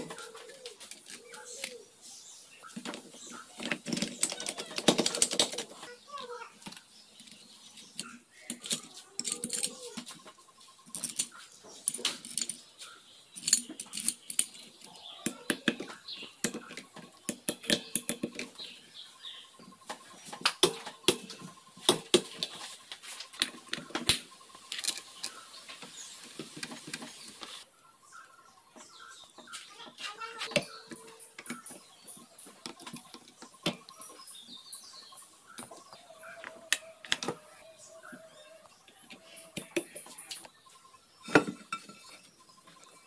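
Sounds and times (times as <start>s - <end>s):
metallic clicks of tools and parts: 6.6s - 10.2s, 10.9s - 15.8s, 23.4s - 25.4s.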